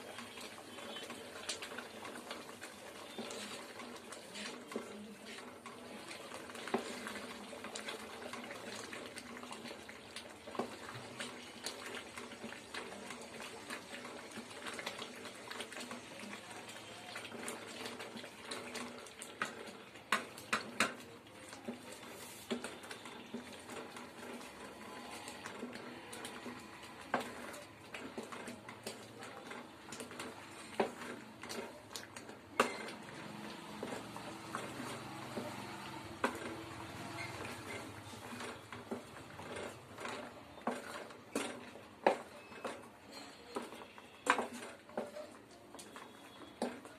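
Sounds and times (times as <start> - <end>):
spatula scraping thick porridge: 0.4 - 9.0, 21.7 - 46.8.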